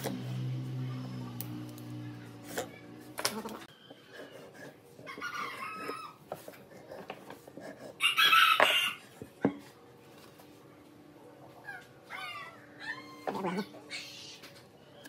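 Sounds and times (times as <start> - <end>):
animal calls: 11.6 - 14.4.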